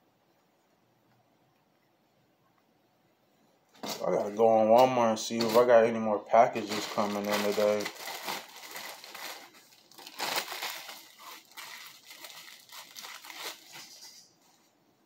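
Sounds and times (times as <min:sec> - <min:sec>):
crinkling and rustling: 0:03.7 - 0:14.8.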